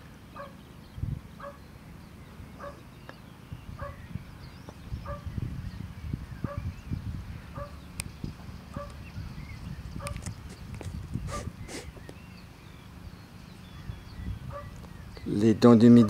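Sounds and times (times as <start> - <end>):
low rumbling on microphone: 0.0 - 16.0
distant dog barking: 0.4 - 0.6, 1.4 - 1.6, 2.6 - 2.9, 3.8 - 4.0, 5.0 - 5.3, 6.4 - 6.7, 7.5 - 7.8, 8.7 - 9.0, 14.5 - 14.8.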